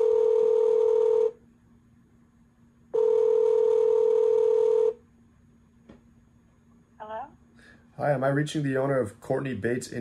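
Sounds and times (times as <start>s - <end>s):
telephone ringback tone: 0.0s - 1.4s, 3.0s - 5.0s.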